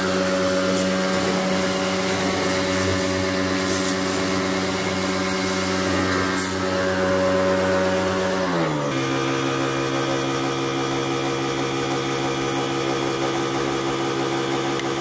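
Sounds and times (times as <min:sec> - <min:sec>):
water spraying: 0:00.0 - 0:08.4
pressure washer motor hum: 0:00.0 - 0:15.0.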